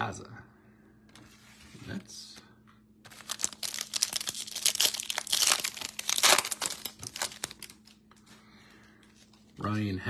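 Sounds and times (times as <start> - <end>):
card pack wrapper crinkling: 3.0 - 8.2.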